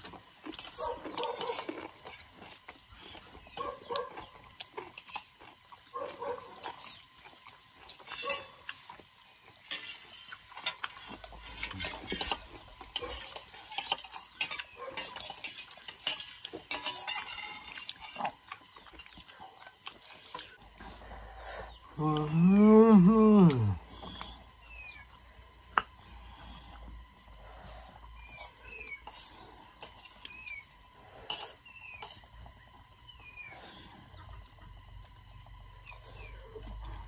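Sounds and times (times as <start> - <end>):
cutlery scraping a plate: 8.0 - 8.5, 9.6 - 18.3, 31.3 - 32.2.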